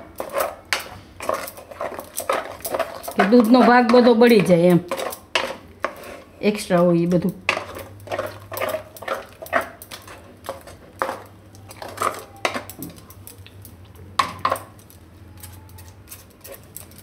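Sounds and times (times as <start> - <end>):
spatula scraping steel pan: 0.0 - 6.8, 7.5 - 12.7.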